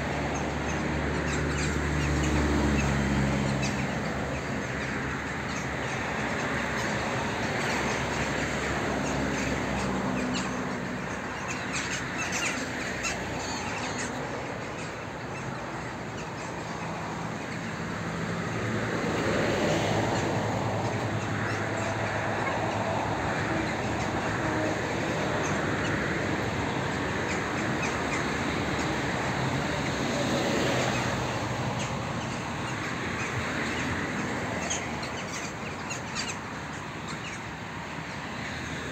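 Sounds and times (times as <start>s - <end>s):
birds calling: 0.0s - 38.9s
distant engine hum: 0.0s - 38.9s.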